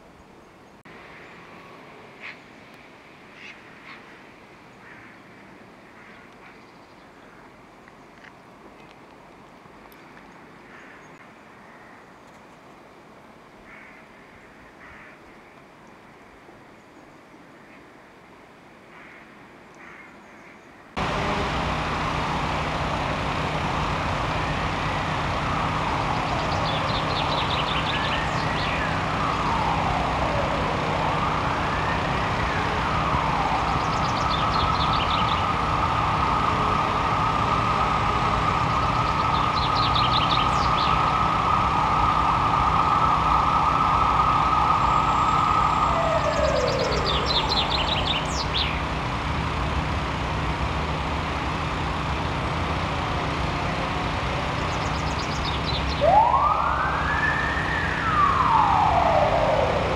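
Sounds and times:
chaffinch singing: 21.0 - 49.6, 54.2 - 59.9
emergency siren wailing: 21.0 - 59.9.

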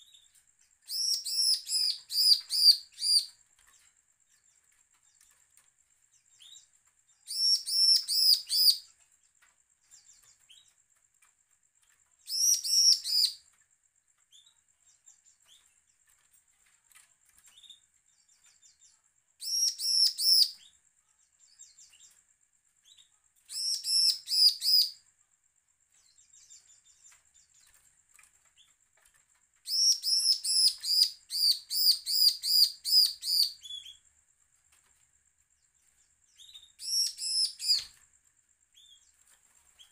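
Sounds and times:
faint bird chips: 0.0 - 25.3, 25.9 - 39.9
bird singing high repeated notes: 0.9 - 3.3, 12.3 - 13.4, 23.5 - 25.0.

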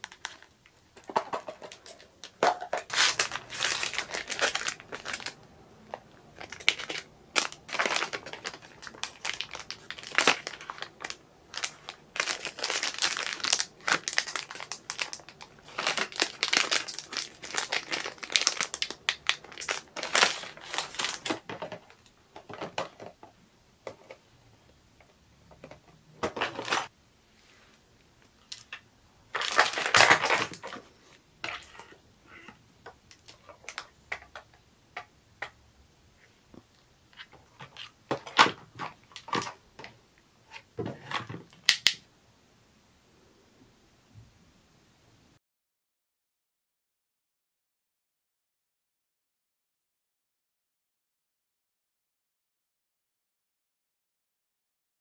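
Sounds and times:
plastic packaging crinkling: 0.0 - 23.2, 26.2 - 26.9, 28.4 - 32.0, 37.1 - 39.9.

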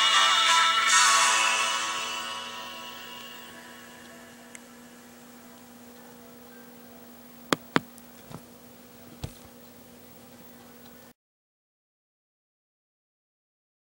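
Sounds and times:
music: 0.0 - 4.4
faint steady hum: 1.7 - 11.1.

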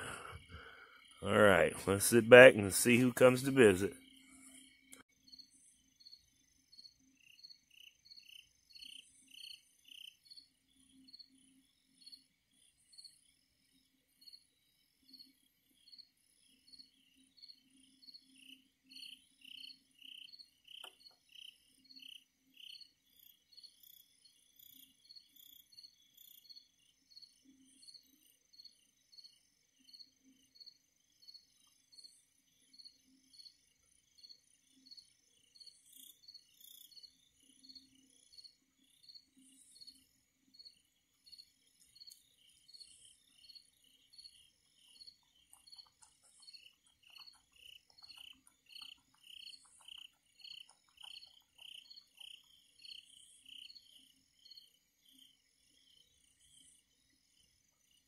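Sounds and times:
crickets chirping: 15.0 - 58.0
high insect chirps: 15.1 - 58.0.

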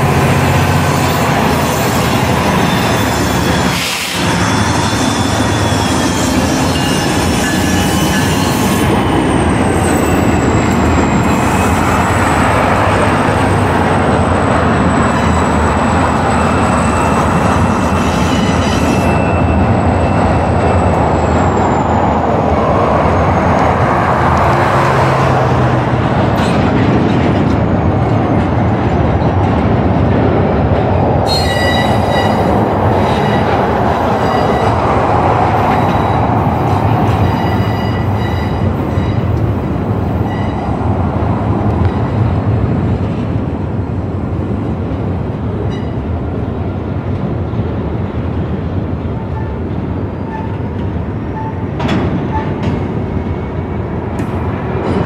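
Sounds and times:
freight train wheels rumbling: 0.0 - 55.0
high wheel squeal: 0.3 - 12.6, 13.8 - 23.6, 31.2 - 39.3.

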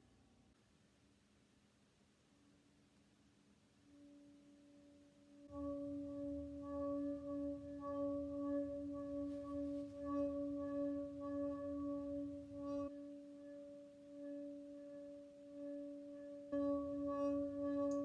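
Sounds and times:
singing pot humming tone: 3.9 - 18.0.

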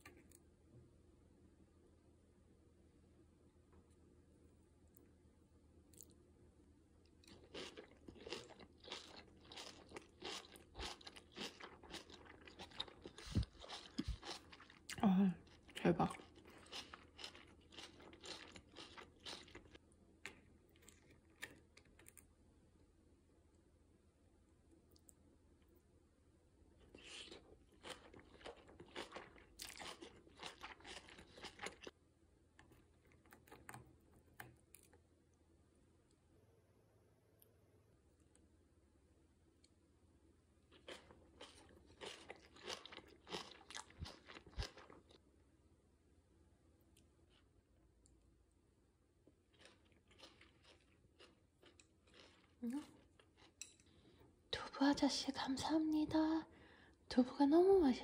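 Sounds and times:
crunchy chewing: 7.2 - 22.3, 26.8 - 31.9, 40.7 - 45.2, 49.5 - 54.1.

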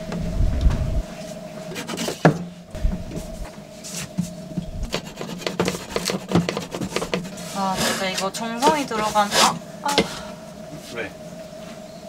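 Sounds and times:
saw rasping across wood: 1.7 - 2.4, 4.8 - 9.6.

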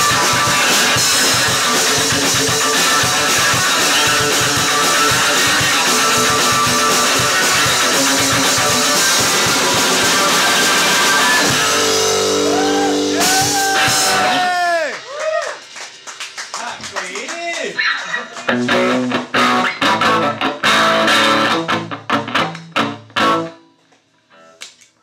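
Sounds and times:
electric guitar: 0.0 - 17.0, 17.8 - 25.0
drum kit: 0.0 - 17.8.

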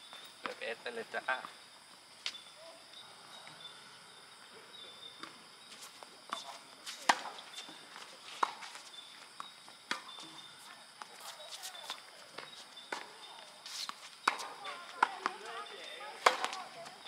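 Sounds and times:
tennis ball bouncing: 6.2 - 8.7, 9.4 - 10.4, 13.8 - 17.0
racket striking tennis ball: 6.3 - 7.4, 13.8 - 15.5, 16.2 - 16.6.

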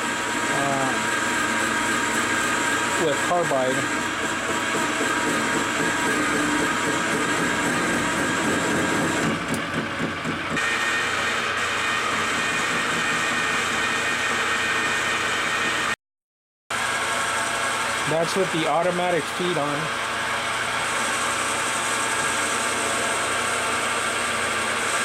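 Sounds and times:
lathe cutting metal: 0.0 - 16.0, 16.7 - 25.0
lathe motor and gear whine: 0.0 - 16.0, 16.7 - 25.0.

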